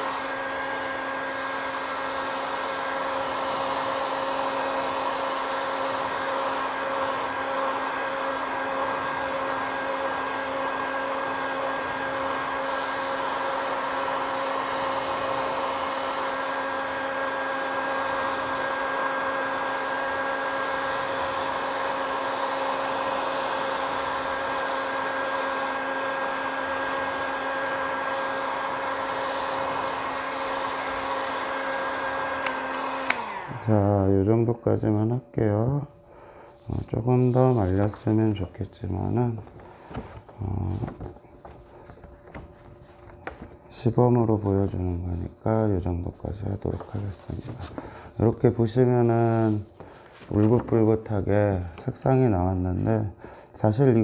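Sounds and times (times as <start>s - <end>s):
heat gun blowing: 0.0s - 34.2s.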